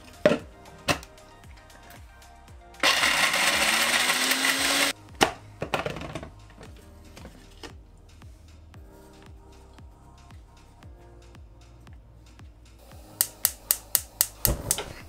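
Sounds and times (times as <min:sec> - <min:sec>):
background music: 0:00.0 - 0:15.0
electric spice grinder: 0:02.8 - 0:04.9.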